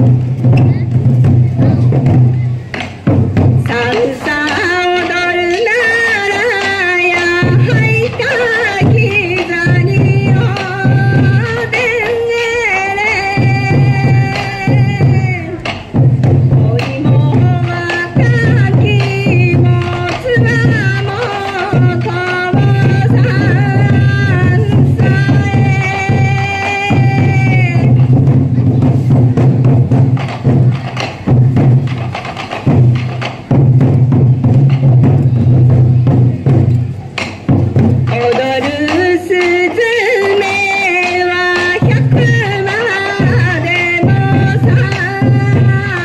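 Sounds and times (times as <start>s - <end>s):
festival melody: 0.0s - 46.0s
taiko drums beating: 0.0s - 46.0s.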